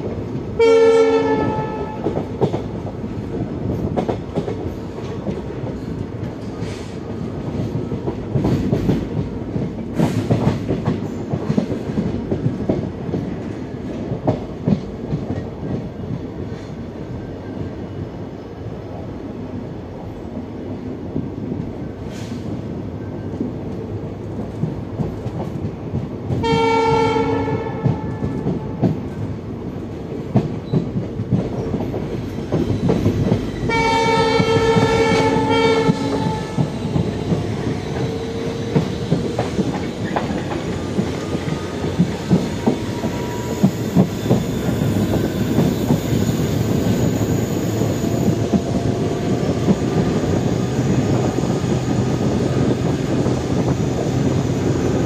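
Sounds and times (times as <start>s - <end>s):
train rumbling on track: 0.0s - 55.0s
locomotive horn blasts: 0.6s - 2.2s, 26.4s - 28.8s, 33.7s - 36.6s
rail clicks: 1.4s - 16.8s, 21.1s - 55.0s.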